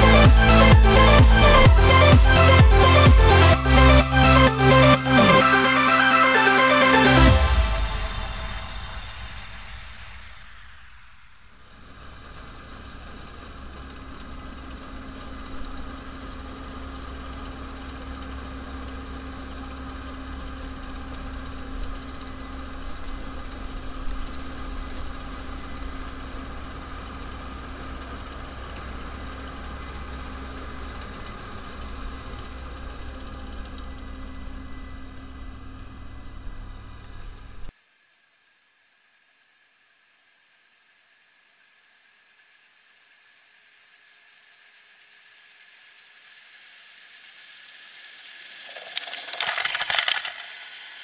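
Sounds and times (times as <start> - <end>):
combine harvester machinery drone: 0.0 - 37.7
constant machine whine: 0.0 - 51.0.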